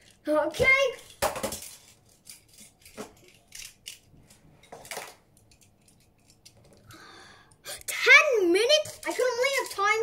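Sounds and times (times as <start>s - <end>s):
plastic clicks and clatters: 8.8s - 10.0s.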